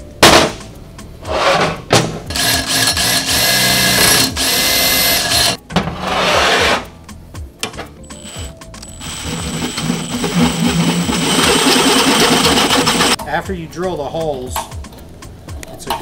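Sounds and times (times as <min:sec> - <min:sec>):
cordless drill drilling steel: 0:02.3 - 0:05.6, 0:08.3 - 0:13.2.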